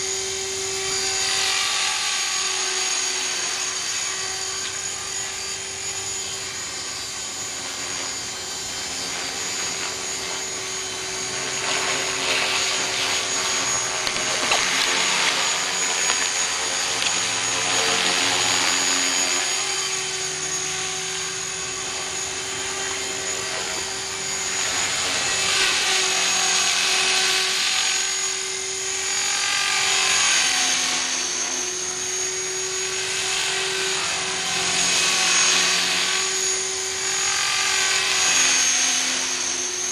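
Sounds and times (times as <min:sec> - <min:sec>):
radio-controlled helicopter whine: 0:00.0 - 0:39.9.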